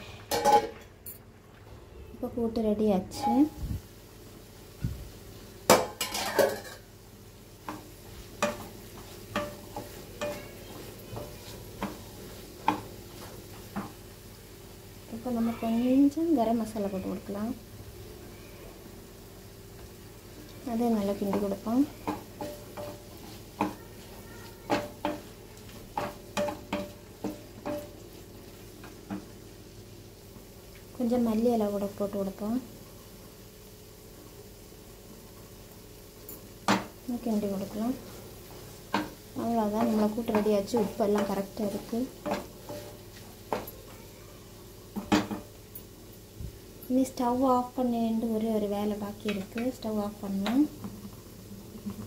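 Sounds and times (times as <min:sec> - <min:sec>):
spatula clattering in a pan: 0:00.3 - 0:00.9, 0:05.7 - 0:06.9, 0:07.6 - 0:14.1, 0:21.0 - 0:29.5, 0:38.1 - 0:44.0, 0:44.9 - 0:45.6
spatula scraping a pan: 0:07.6 - 0:14.0, 0:20.4 - 0:29.4, 0:38.0 - 0:43.7.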